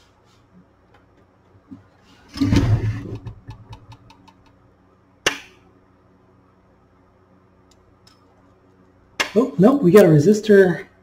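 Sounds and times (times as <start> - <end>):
metal chassis scraping thud on wood: 2.3 - 3.4.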